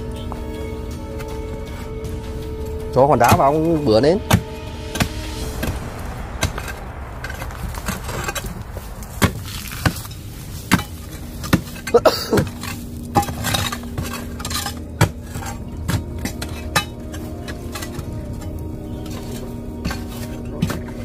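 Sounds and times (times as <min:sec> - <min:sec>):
digging tools striking stones: 0:10.7 - 0:18.0.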